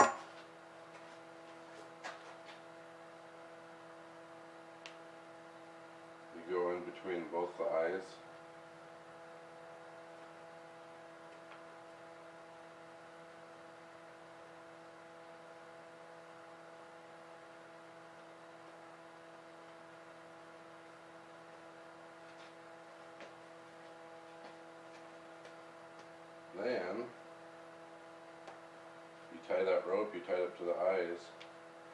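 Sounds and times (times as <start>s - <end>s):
faint electrical hum: 0.0s - 31.9s.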